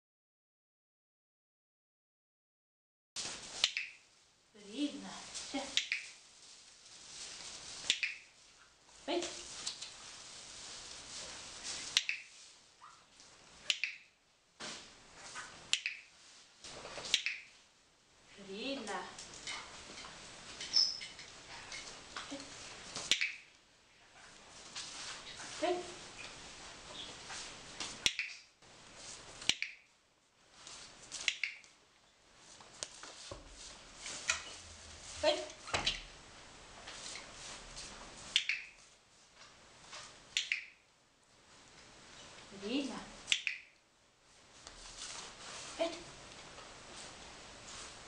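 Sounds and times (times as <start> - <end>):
dog-training clicker clicks: 5.8 - 6.1, 13.7 - 14.0, 40.4 - 40.7, 43.3 - 43.6.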